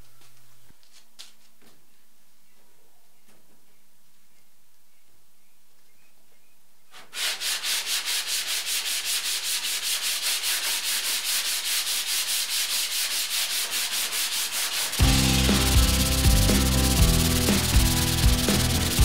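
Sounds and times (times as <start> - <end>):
sanding block scraping filler: 6.9 - 19.0
music with heavy bass: 15.0 - 19.0.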